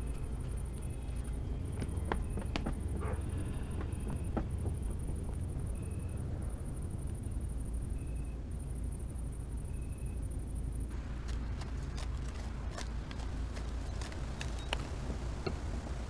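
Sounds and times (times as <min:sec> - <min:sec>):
low rumble: 0:00.0 - 0:16.0
sharp clicks and ticks: 0:10.9 - 0:15.6.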